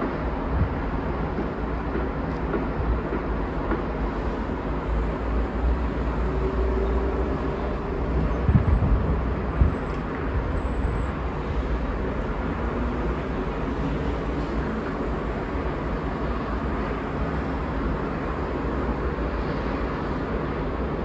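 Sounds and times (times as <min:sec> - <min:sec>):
city traffic noise: 0:00.0 - 0:21.0
wind buffeting microphone: 0:08.2 - 0:10.6.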